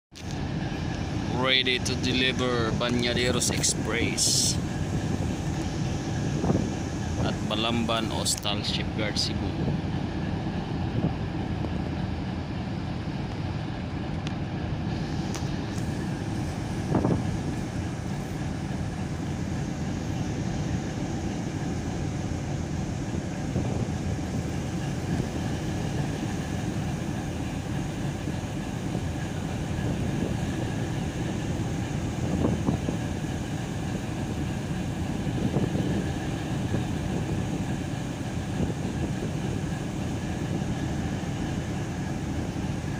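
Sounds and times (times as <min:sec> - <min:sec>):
wind: 0:00.0 - 0:42.9
boat engine drone: 0:00.1 - 0:42.9.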